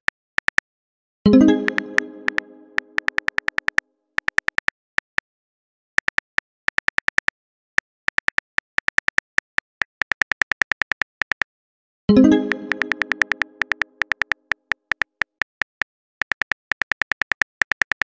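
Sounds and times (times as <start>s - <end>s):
message sent chime: 1.3s - 3.1s, 12.1s - 14.0s.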